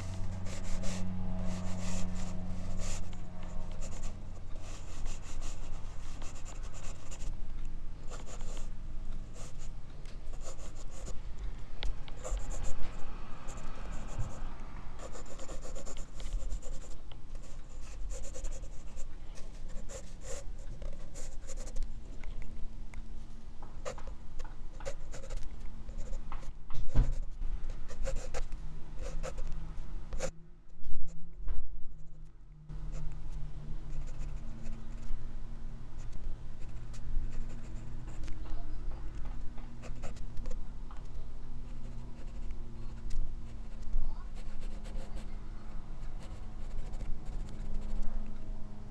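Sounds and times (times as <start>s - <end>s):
pencil scratching on paper: 0.0s - 7.4s, 8.1s - 8.7s, 9.3s - 9.7s, 10.3s - 11.2s, 12.1s - 21.8s, 24.8s - 29.5s, 41.7s - 45.3s, 46.0s - 48.1s.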